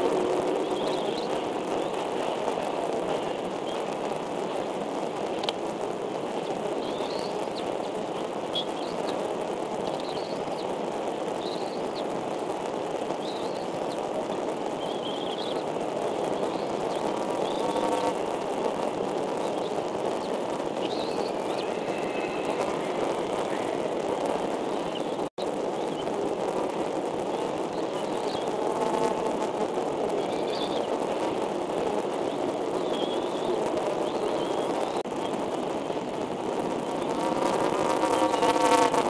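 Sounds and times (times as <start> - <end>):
faint drone: 0.0 - 10.7, 15.1 - 28.7
steady rushing noise: 0.0 - 39.0.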